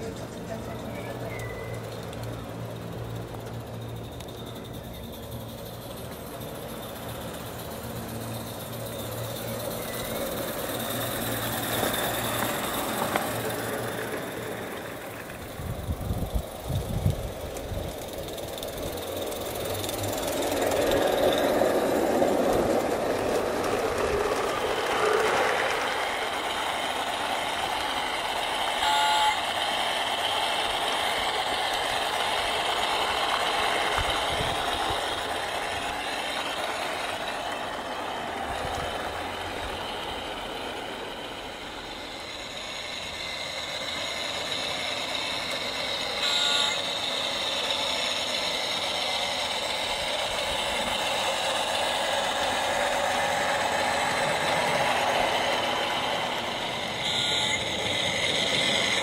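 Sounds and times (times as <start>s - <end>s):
model train wheels clattering: 0.0s - 59.0s
train toots: 28.4s - 37.1s, 42.1s - 59.0s.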